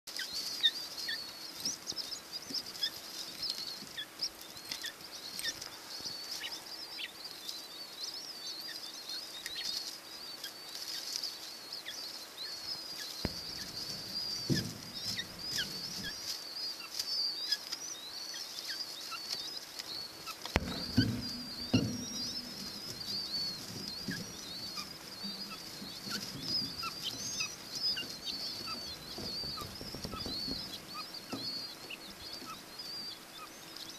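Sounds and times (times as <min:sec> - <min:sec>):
quail chicks peeping: 0:00.1 - 0:33.9
low soft thumps: 0:13.2 - 0:16.2, 0:20.6 - 0:33.0.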